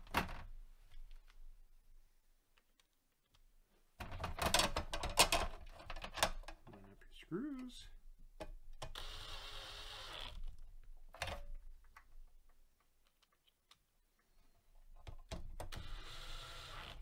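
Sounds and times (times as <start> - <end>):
cordless drill driving screw: 9.0 - 10.4, 15.8 - 17.0.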